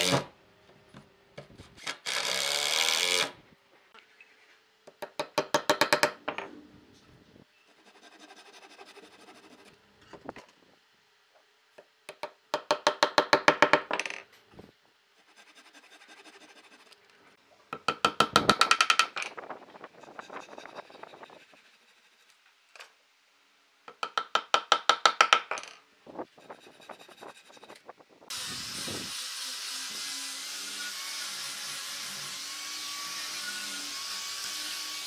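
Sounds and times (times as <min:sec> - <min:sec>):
hammer tapping wooden dowels: 0:04.9 - 0:06.4, 0:11.8 - 0:14.2, 0:23.9 - 0:25.8.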